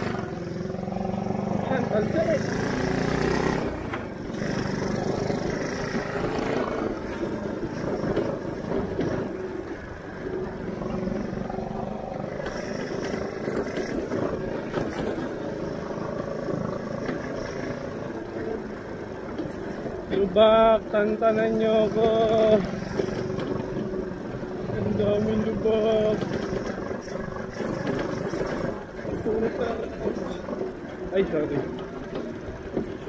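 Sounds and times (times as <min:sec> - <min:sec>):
go-kart engine running: 0:00.0 - 0:33.0.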